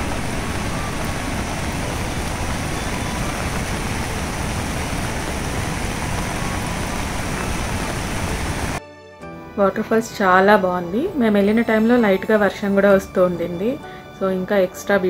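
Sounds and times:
light rain falling: 0:00.0 - 0:08.8
river rushing over rapids: 0:00.0 - 0:08.8.

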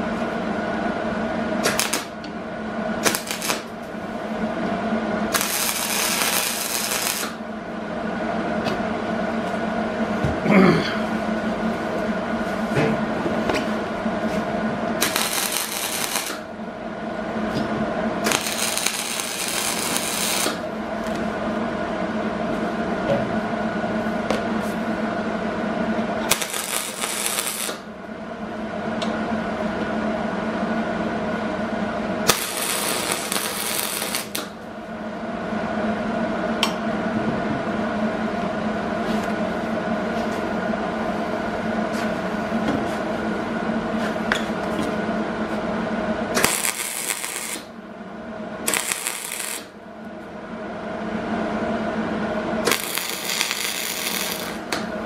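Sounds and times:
steady machine hum: 0:00.0 - 0:55.0
welding arc crackling: 0:01.6 - 0:02.2, 0:03.0 - 0:03.9, 0:05.3 - 0:07.4, 0:15.0 - 0:16.5, 0:18.2 - 0:21.2, 0:26.2 - 0:27.9, 0:32.2 - 0:34.6, 0:46.3 - 0:47.7, 0:48.6 - 0:49.8, 0:52.6 - 0:55.0.

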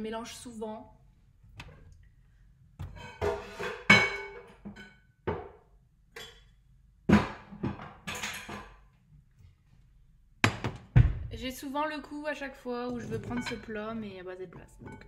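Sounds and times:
glass dishes clinking: 0:13.0 - 0:13.8, 0:14.6 - 0:15.0.

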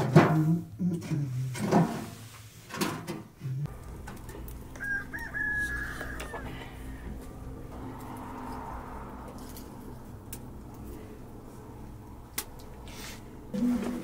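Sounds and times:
wood fire rumbling in stove: 0:03.7 - 0:14.0
rooster crowing: 0:04.7 - 0:09.2.

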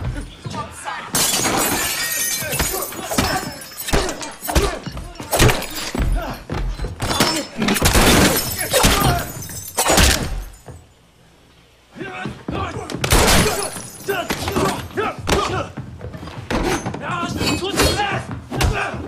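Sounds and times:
glass shattering: 0:01.1 - 0:10.8, 0:13.1 - 0:15.0.

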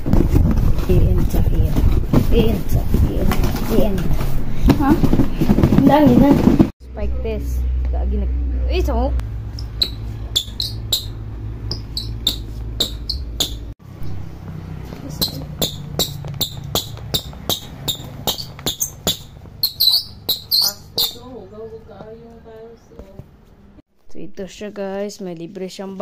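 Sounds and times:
shoes squeaking on tile floor: 0:09.6 - 0:22.2.

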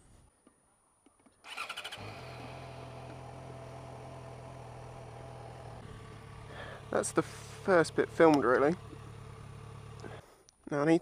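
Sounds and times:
motorcycle starter cranking: 0:01.5 - 0:03.3, 0:06.4 - 0:10.2
motorcycle engine idling: 0:01.5 - 0:10.4.

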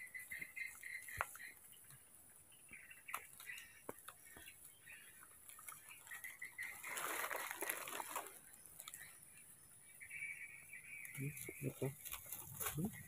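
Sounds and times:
dry leaves rustling and crackling: 0:00.1 - 0:02.0, 0:02.8 - 0:09.2, 0:11.0 - 0:13.0.

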